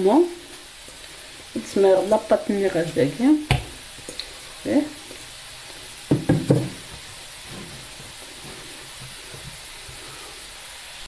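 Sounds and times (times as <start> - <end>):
faint hiss: 0.0 - 11.0
dull knocks on wooden board: 3.5 - 3.8, 6.1 - 7.0.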